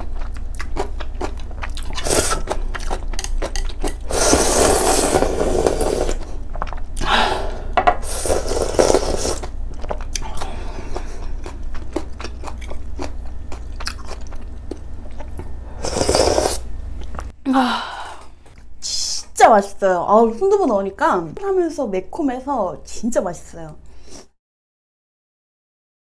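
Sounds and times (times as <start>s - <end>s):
wet chewing: 0.0s - 7.1s, 8.4s - 17.3s
person slurping noodles: 1.9s - 2.6s, 4.0s - 6.4s, 7.0s - 9.6s, 15.7s - 16.7s.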